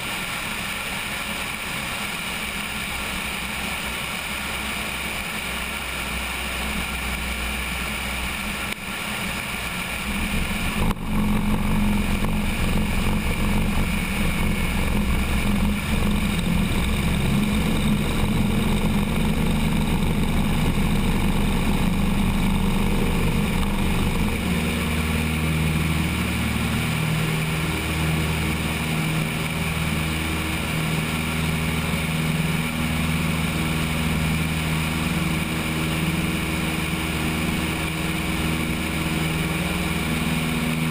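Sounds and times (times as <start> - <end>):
airplane engine and propeller: 0.0 - 40.9
rumble and rattle of ground roll: 0.0 - 40.9.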